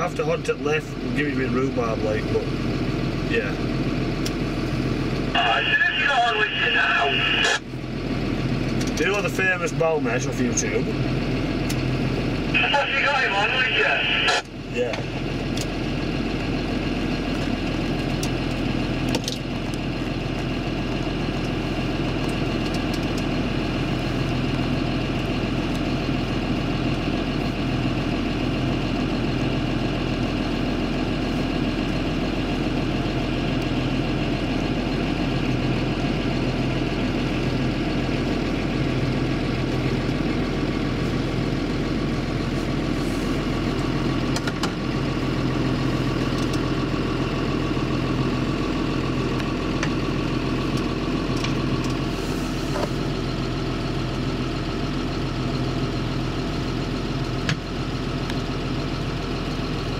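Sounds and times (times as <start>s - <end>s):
forage harvester engine drone: 0.0s - 59.9s
tractor engine: 0.0s - 59.9s.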